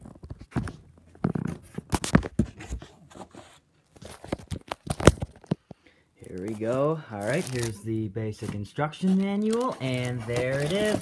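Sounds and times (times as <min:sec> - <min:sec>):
cardboard packaging being opened: 0:06.2 - 0:11.0.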